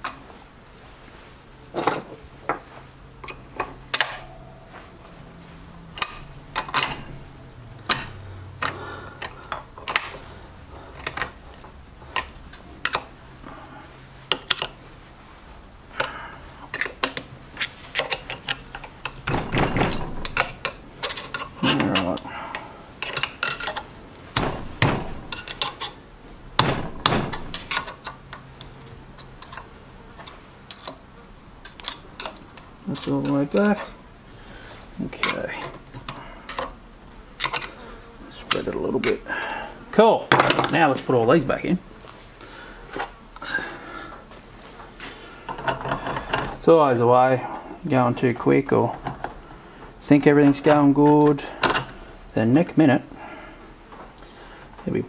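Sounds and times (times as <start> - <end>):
metal parts clinking and tapping: 3.2 - 4.9, 6.0 - 7.3, 7.9 - 10.2, 11.0 - 13.1, 16.7 - 22.3, 23.0 - 26.0, 26.6 - 31.0, 31.6 - 34.0, 35.2 - 36.8.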